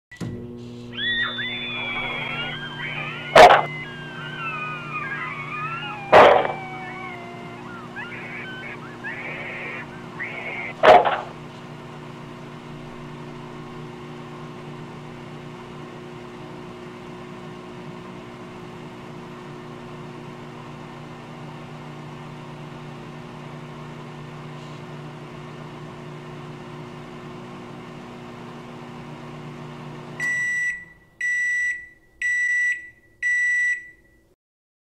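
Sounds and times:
microwave beeps: 0.1 - 10.8, 30.2 - 34.3
microwave oven humming: 0.1 - 34.3
high-pitched squeals: 1.0 - 11.3.

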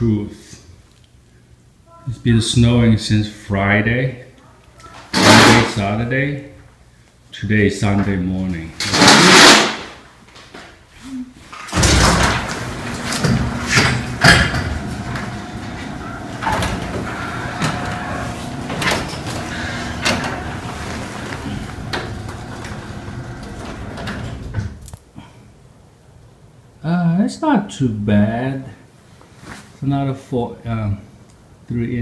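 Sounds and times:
garage door opener rumbling: 11.7 - 24.8.

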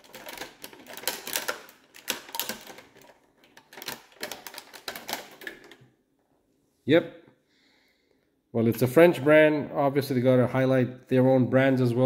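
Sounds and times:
toy packaging crackling: 0.0 - 5.9.

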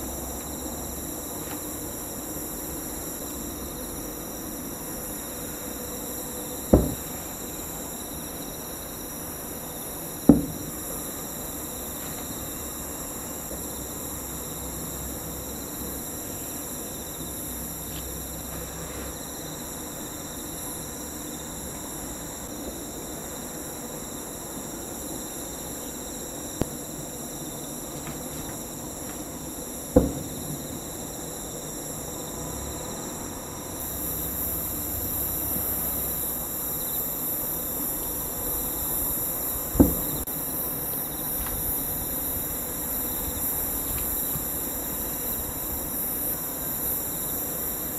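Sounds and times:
night insects chorus: 0.0 - 47.9
distant firework booms: 6.7 - 7.2.

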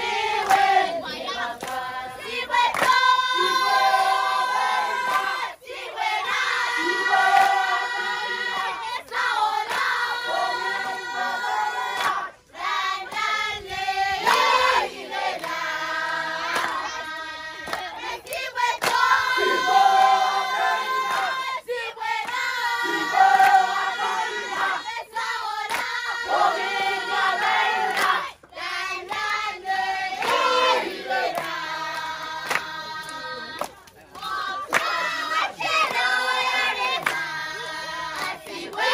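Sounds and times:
group of voices singing in chorus: 0.0 - 38.9.

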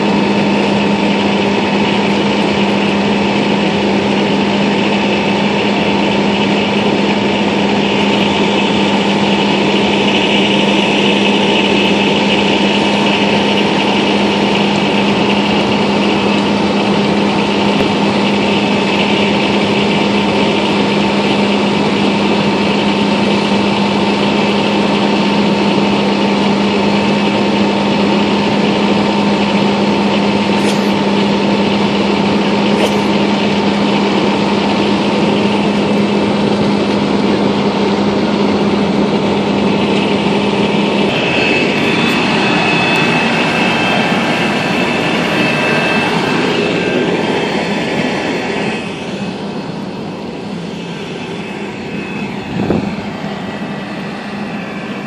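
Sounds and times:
fire engine pump droning: 0.0 - 55.0
hissing noise: 40.6 - 55.0.

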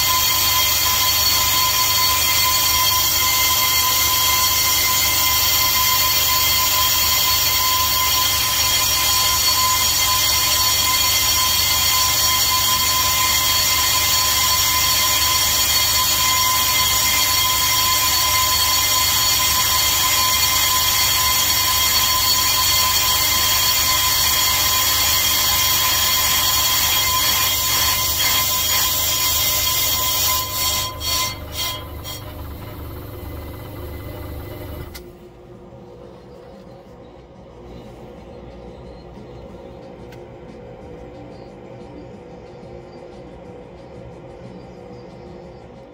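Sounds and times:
lathe high whine: 0.0 - 35.0.

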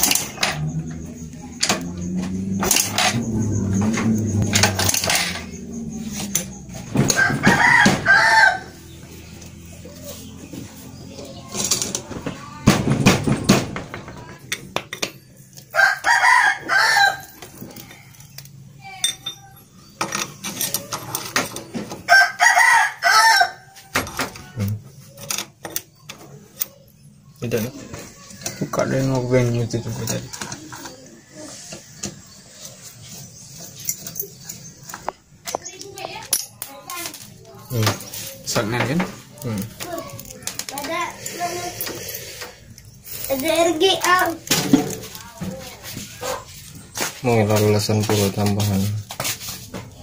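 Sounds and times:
motorcycle engine kick-started: 0.0 - 7.6
rooster crowing: 7.0 - 9.0, 15.7 - 17.5, 22.1 - 24.0.

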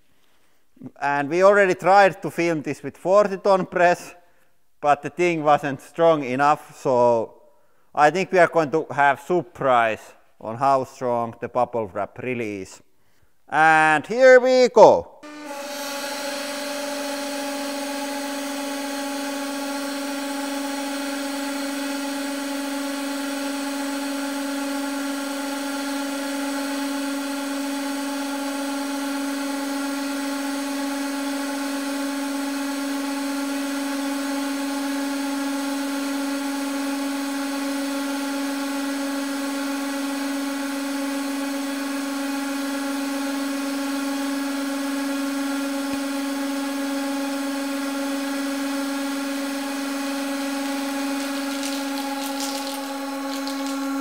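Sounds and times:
hydraulic pump humming: 15.2 - 54.0
bubble wrap being squeezed: 50.4 - 54.0.

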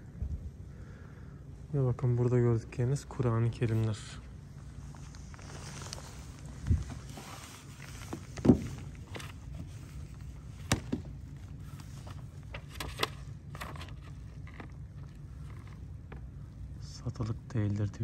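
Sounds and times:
steady low hum: 0.0 - 18.0
pages turning: 4.9 - 16.3
book thumping on wooden shelf: 8.1 - 8.8, 10.6 - 11.1.

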